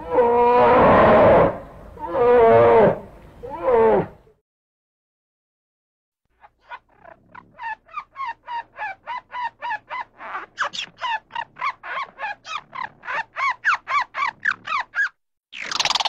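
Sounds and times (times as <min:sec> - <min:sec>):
bird calling rapidly: 0:06.4 - 0:16.0.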